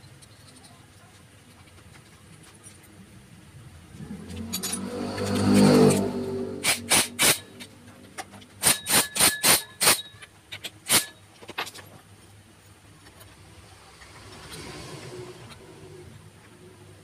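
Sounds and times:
impact wrench hammering: 0:06.6 - 0:07.7, 0:08.6 - 0:10.2.

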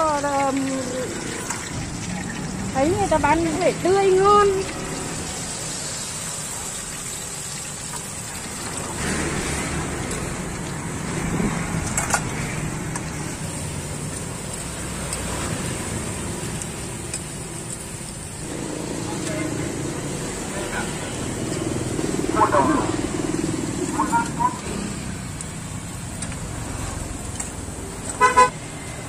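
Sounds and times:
food deep-frying in oil: 0:00.0 - 0:29.0
street traffic hum: 0:00.0 - 0:29.0.

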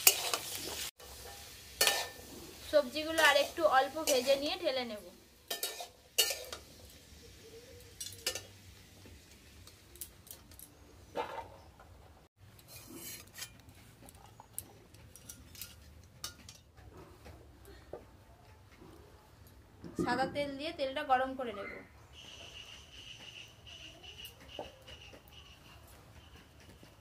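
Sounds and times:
metal spatula scraping a pan: 0:00.0 - 0:04.8, 0:05.4 - 0:07.3, 0:12.6 - 0:13.9.

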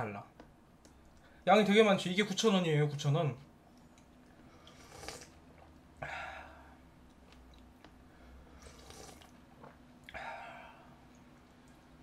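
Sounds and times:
slurping and chewing: 0:03.9 - 0:06.0, 0:07.0 - 0:10.2.

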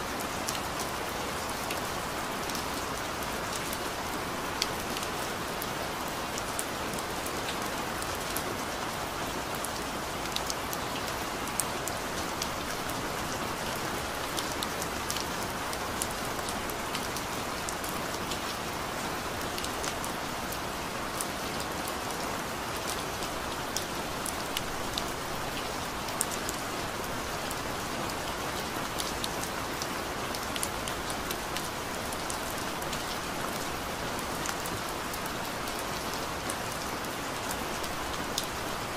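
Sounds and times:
rain falling: 0:00.0 - 0:38.9.

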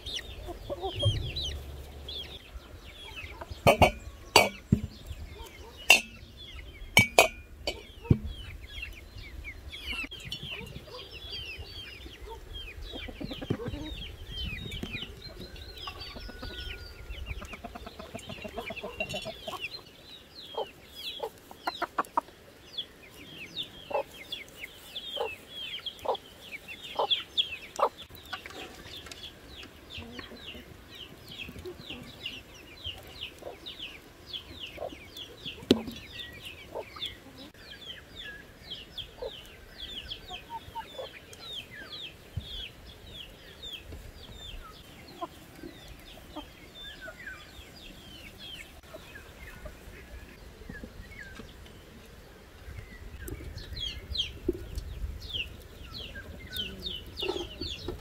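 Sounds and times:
high bird chirps: 0:00.0 - 0:08.6
chickens clucking: 0:00.0 - 0:58.0
sharp knock: 0:01.0 - 0:01.8.

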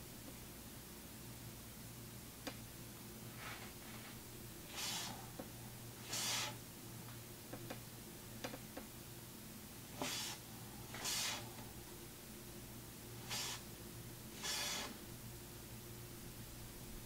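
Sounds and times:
steady low hum: 0:00.0 - 0:17.0
short soft hisses: 0:03.4 - 0:05.4, 0:06.0 - 0:06.6, 0:10.0 - 0:11.7, 0:13.2 - 0:13.7, 0:14.4 - 0:15.0.

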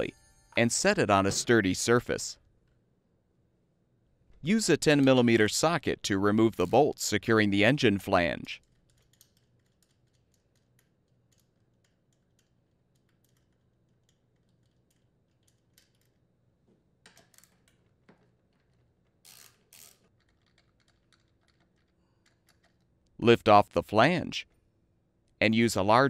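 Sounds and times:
metal parts clicking and tapping: 0:08.6 - 0:16.3, 0:17.0 - 0:23.1.

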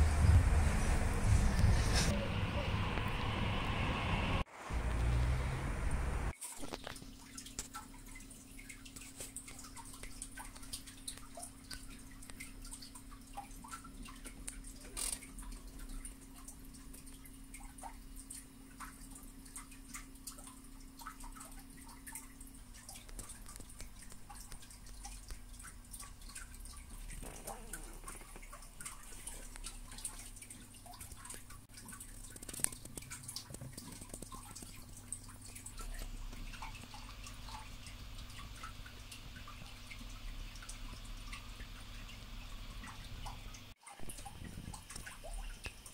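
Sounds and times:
steady low hum: 0:00.0 - 0:06.3
faint small ticks and clicks: 0:06.5 - 0:45.9.

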